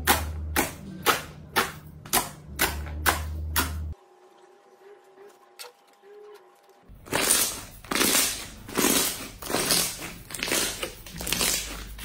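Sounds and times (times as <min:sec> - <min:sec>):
wet slime squishing: 0:07.0 - 0:12.0.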